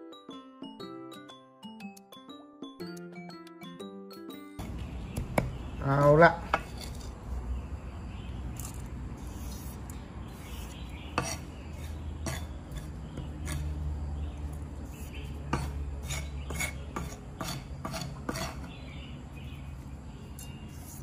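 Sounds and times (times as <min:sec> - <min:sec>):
utensils clicking against a dish: 0:20.3 - 0:20.8.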